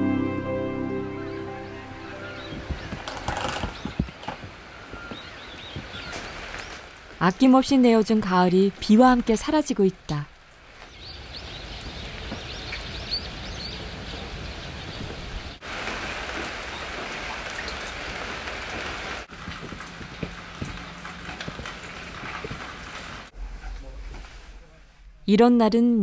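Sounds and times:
steady rain falling: 0.0s - 25.0s
sharp ticks of raindrops: 15.6s - 23.3s.

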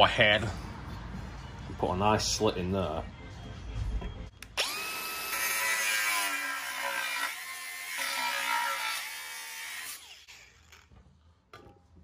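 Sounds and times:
angle grinder cutting metal: 4.6s - 10.8s.

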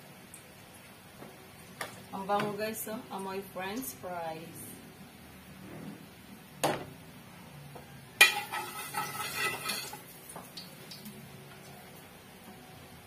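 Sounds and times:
spatula scraping in wok: 8.2s - 10.0s.

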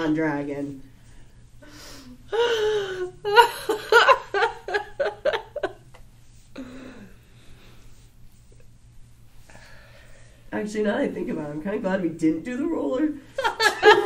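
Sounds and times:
woman laughing: 2.4s - 5.9s, 13.4s - 14.0s.

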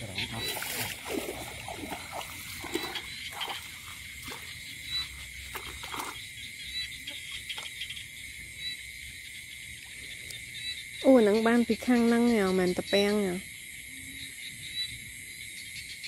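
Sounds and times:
night insects trilling: 0.0s - 16.0s.

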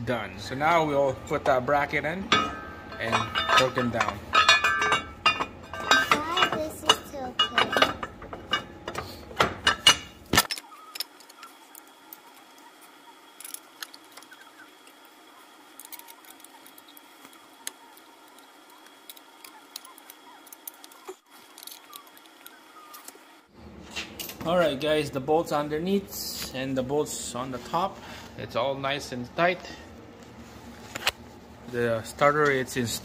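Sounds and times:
voices talking: 0.0s - 8.1s
metal hand tools clinking: 2.3s - 11.5s.

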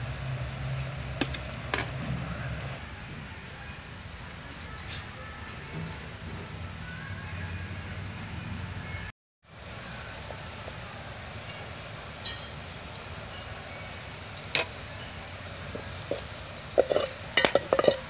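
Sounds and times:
curry simmering hiss: 0.0s - 7.9s, 9.4s - 18.0s
spoon stirring pot: 15.7s - 18.0s.

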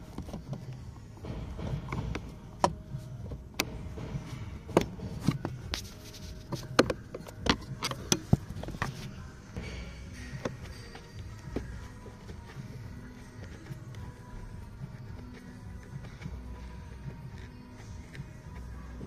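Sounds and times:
low rumble: 0.9s - 6.1s.

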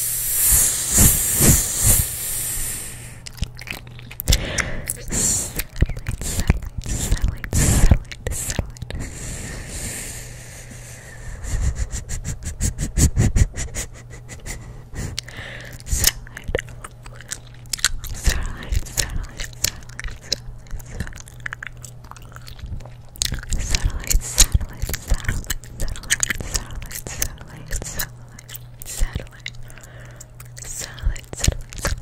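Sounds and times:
chewing gum smacking and clicking: 3.2s - 9.0s, 15.1s - 32.0s.

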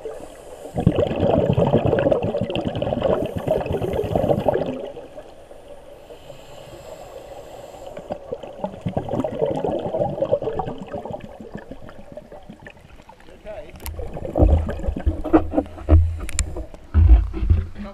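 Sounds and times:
air bubbles gurgling underwater: 0.0s - 5.4s, 8.1s - 16.6s.

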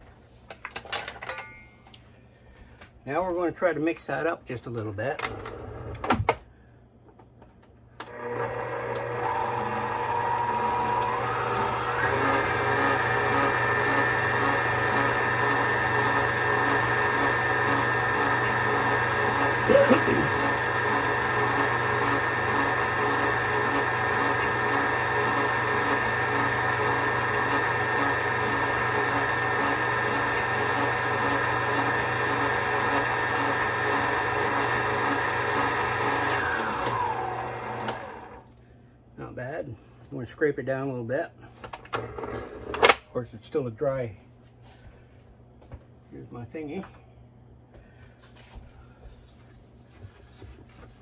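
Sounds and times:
electric mixer whining: 8.0s - 38.5s.

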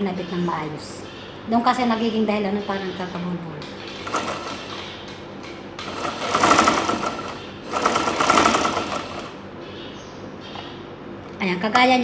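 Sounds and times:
sewing machine stitching: 4.0s - 4.7s, 5.9s - 9.3s.

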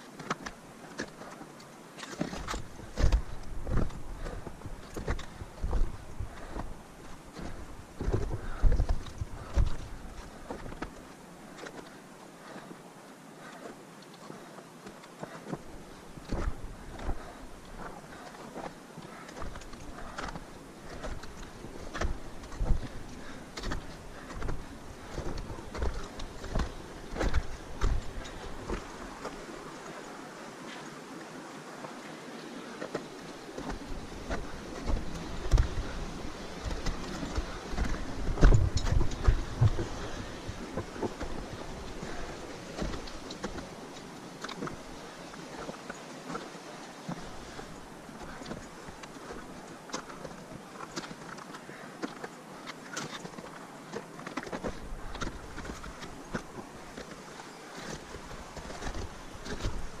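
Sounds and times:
steady hiss: 0.0s - 60.0s
boots crunching on snow: 2.1s - 12.6s, 15.2s - 30.8s, 32.7s - 52.4s, 53.0s - 60.0s
wind buffeting microphone: 2.5s - 10.9s, 19.4s - 29.8s, 33.1s - 43.8s
footsteps on ice: 15.2s - 29.5s
trekking pole tips tapping snow: 16.2s - 29.9s, 32.8s - 46.5s, 52.9s - 60.0s.

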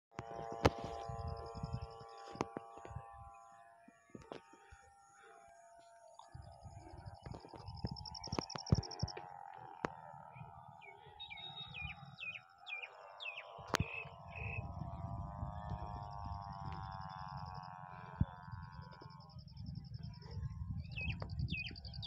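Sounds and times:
wind rumbling on microphone: 0.1s - 4.8s, 6.2s - 22.0s
wavering drone: 0.1s - 22.0s
bird chirping: 9.8s - 14.8s, 20.8s - 22.0s.

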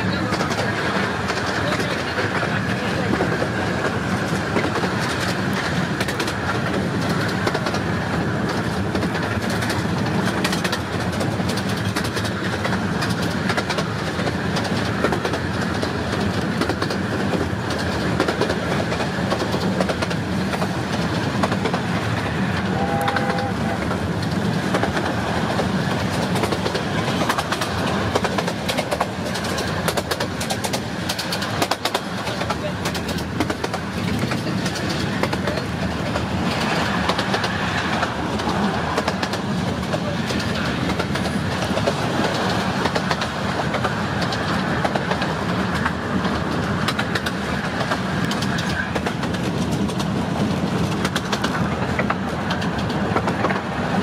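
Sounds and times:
miniature train rumbling: 0.0s - 54.0s
wheels clicking over rail joints: 0.0s - 54.0s
locomotive two-pitch hoot: 22.7s - 23.8s.

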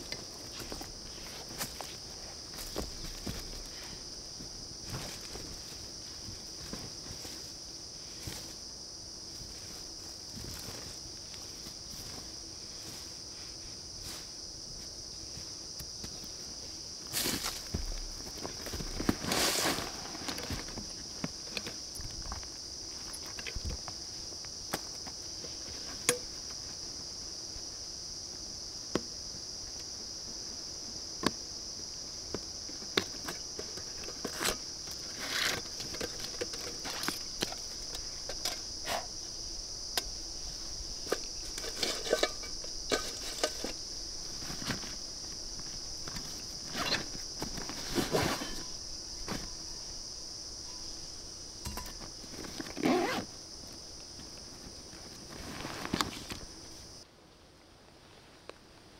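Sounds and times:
camping gear clicks and rustles: 0.0s - 7.6s, 17.1s - 27.1s, 32.3s - 57.0s
forest insects droning: 0.0s - 58.9s.

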